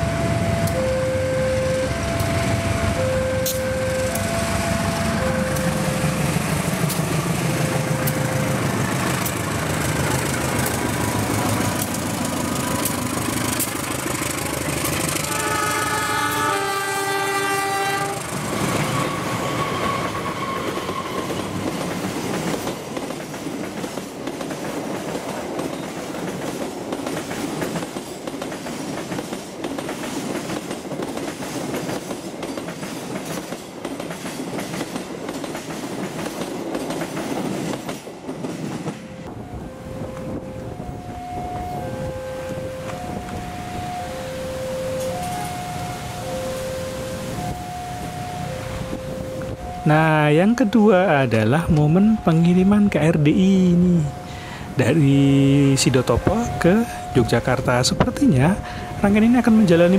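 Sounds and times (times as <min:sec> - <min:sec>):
diesel locomotive engine droning: 0:00.0 - 0:23.8, 0:35.6 - 0:59.9
train wheels clicking over rails: 0:01.8 - 0:16.5, 0:18.1 - 0:39.4
multi-note train horn: 0:14.3 - 0:21.6.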